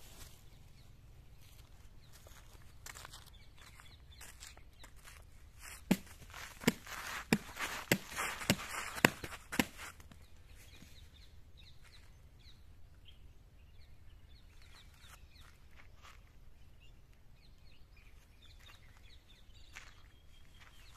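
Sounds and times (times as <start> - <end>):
faint bird chirps: 0.1 - 5.8, 10.2 - 20.9
footsteps on concrete: 2.1 - 10.2.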